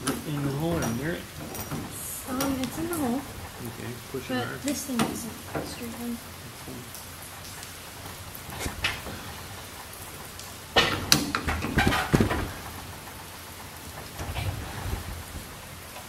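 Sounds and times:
metal hardware clanking: 0.0 - 3.1.

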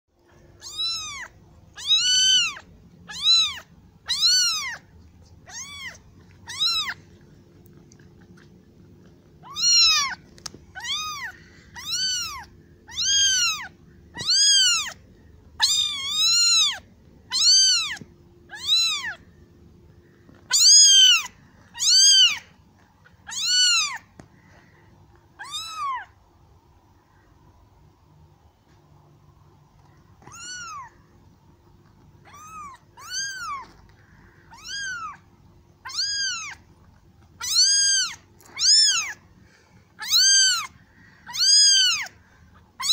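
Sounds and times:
kitten meowing loudly: 0.6 - 4.8, 5.5 - 7.0, 9.4 - 10.2, 10.8 - 15.0, 15.6 - 19.2, 20.5 - 22.4, 23.2 - 24.0, 25.4 - 26.1, 30.2 - 30.9, 32.3 - 33.7, 34.5 - 35.2, 35.8 - 36.6, 37.4 - 39.2, 40.0 - 42.1.

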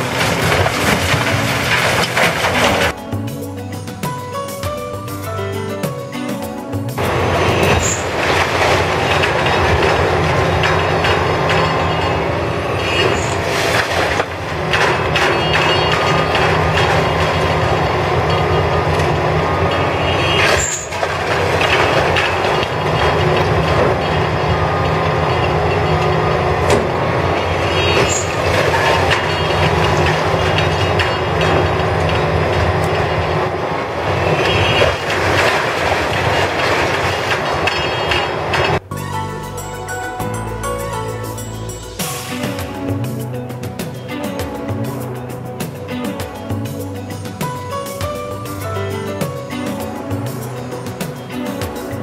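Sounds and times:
metallic knocks and clanks: 0.0 - 33.4
diesel engine droning: 6.6 - 47.8.

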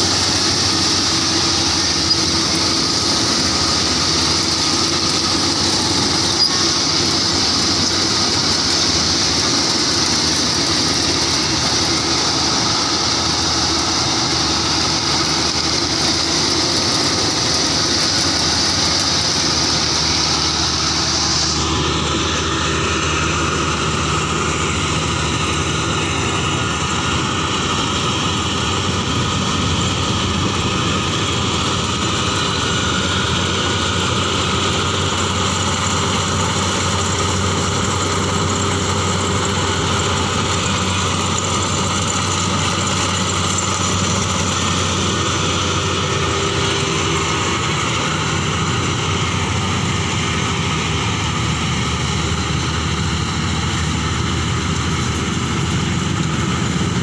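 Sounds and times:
high hiss of threshing gear: 0.0 - 23.8
combine harvester running: 0.0 - 57.0.

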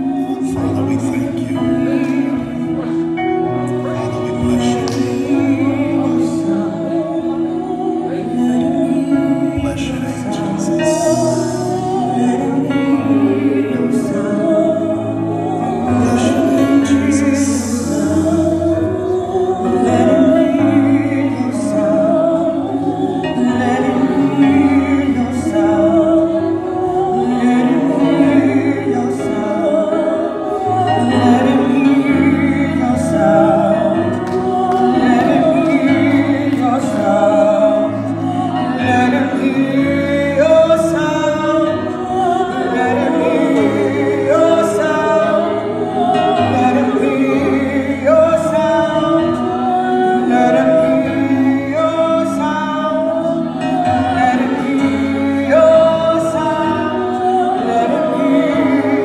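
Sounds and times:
keyboard accompaniment: 0.0 - 59.0
voices singing gospel: 0.0 - 59.0.

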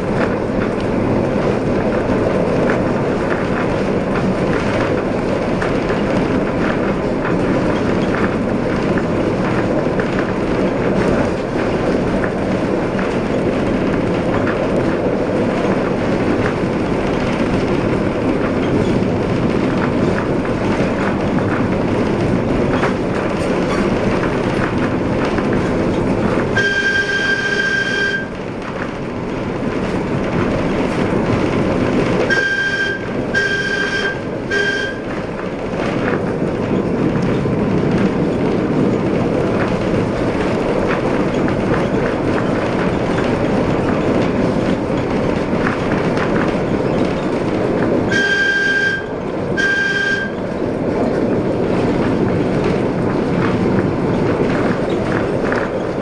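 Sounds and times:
streetcar rumbling on rails: 0.0 - 56.0
streetcar horn: 26.4 - 28.5, 32.2 - 35.4, 48.0 - 50.6.

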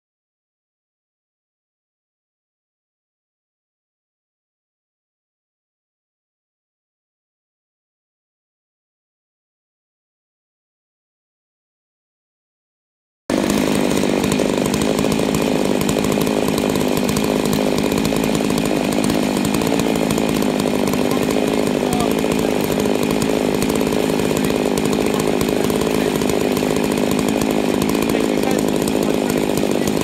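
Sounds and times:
chainsaws cutting log at full throttle: 13.3 - 30.0.

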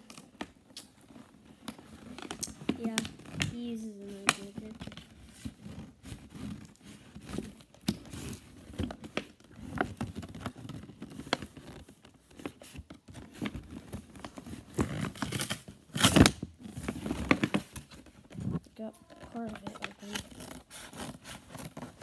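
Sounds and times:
toy packaging being cut and torn: 19.3 - 21.4.

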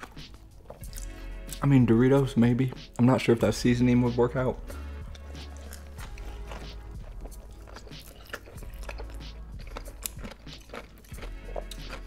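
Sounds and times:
person chewing crunchy food: 0.0 - 1.6, 4.6 - 12.0
background music: 0.0 - 12.0
wet sticky eating smacks: 5.1 - 12.0.

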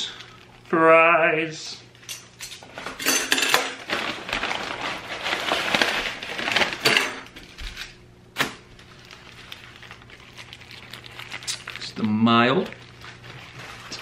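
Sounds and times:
paper bag rustling: 3.7 - 8.0, 8.7 - 14.0.

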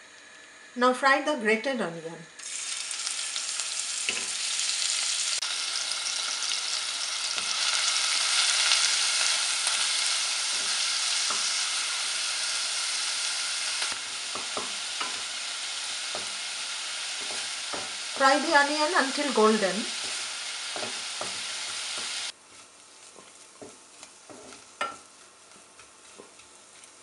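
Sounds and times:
onion sizzling in hot oil: 2.4 - 27.0
wooden spatula knocking on pan: 20.8 - 21.4.

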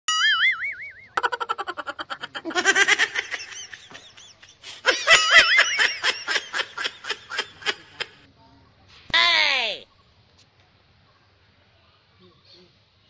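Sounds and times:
cartoonish high-pitched giggling: 1.2 - 8.3.

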